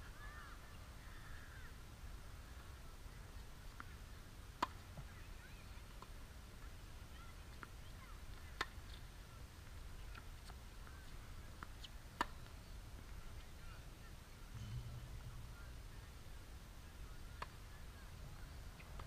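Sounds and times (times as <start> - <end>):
low outdoor rumble: 2.4 - 19.0
tennis ball struck by racket: 4.6 - 4.8, 12.2 - 12.4, 14.5 - 15.8
tennis ball bouncing: 4.6 - 5.1, 8.6 - 8.8, 11.6 - 12.5, 14.5 - 16.0, 17.3 - 17.6
distant tennis hits: 14.5 - 15.9.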